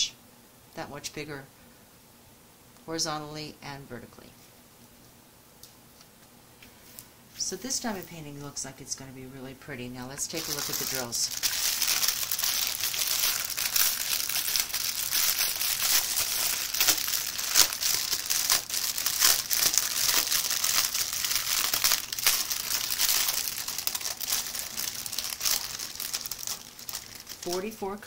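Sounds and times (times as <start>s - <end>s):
plastic bags crinkling: 10.2s - 28.0s.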